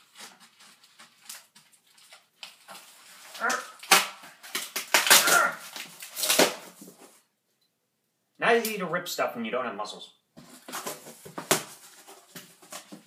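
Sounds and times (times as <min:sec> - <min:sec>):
tape and cardboard tearing: 0:00.0 - 0:07.0, 0:10.4 - 0:13.0.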